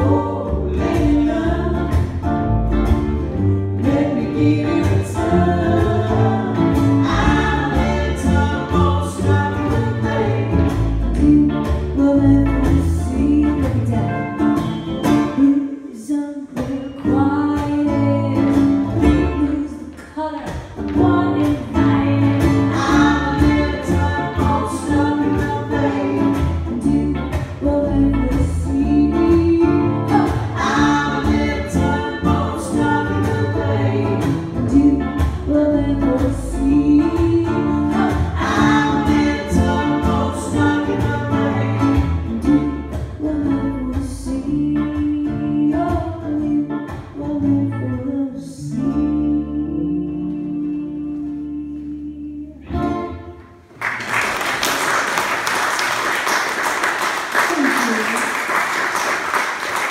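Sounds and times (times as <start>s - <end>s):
ukulele strummed: 0.0s - 15.6s, 20.5s - 47.7s
double bass: 0.0s - 15.8s, 16.6s - 53.8s.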